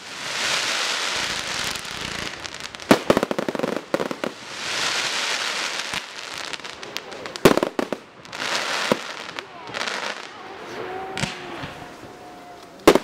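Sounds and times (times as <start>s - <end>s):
fireworks crackling hiss: 0.0s - 13.0s
firework bang: 11.1s - 12.2s
rapid firework pops: 12.8s - 13.0s.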